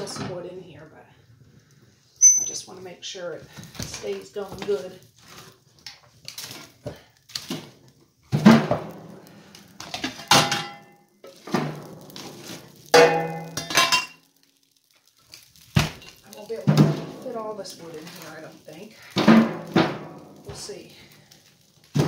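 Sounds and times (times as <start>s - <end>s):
brief metallic ringing: 2.2s - 2.6s.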